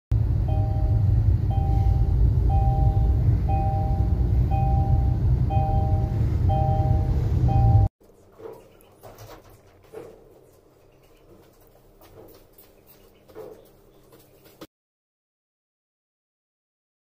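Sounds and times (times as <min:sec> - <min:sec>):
road and engine rumble: 0:00.1 - 0:14.7
two-note dashboard warning chime: 0:00.4 - 0:07.9.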